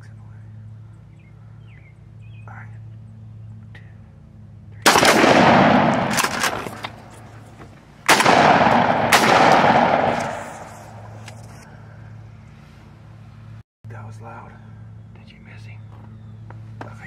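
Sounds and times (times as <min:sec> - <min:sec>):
sharp crack: 0:04.8 - 0:07.3, 0:08.0 - 0:11.6
shotgun blasts: 0:04.8 - 0:07.3, 0:08.0 - 0:11.2.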